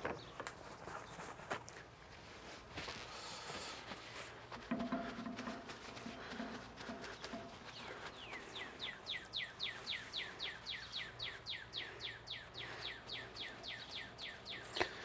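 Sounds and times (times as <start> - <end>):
bird chirping: 6.4 - 15.0.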